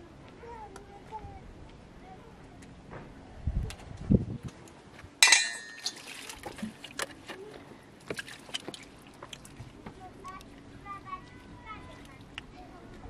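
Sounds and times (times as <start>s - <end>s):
metal dish clanking: 5.2s - 6.0s.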